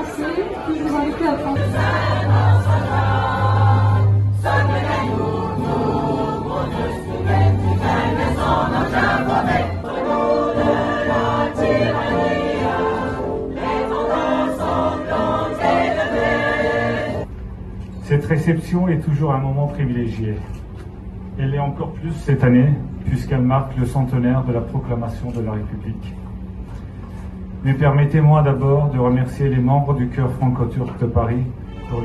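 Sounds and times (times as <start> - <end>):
choir singing an anthem: 0.0 - 17.3.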